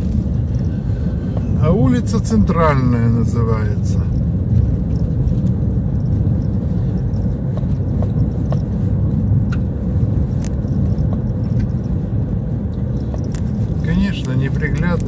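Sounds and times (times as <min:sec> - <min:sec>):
car engine and tyres rumbling: 0:00.0 - 0:15.0.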